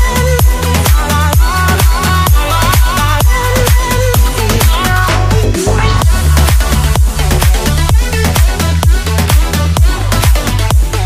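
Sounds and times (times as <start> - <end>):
electronic dance music: 0.0 - 11.0.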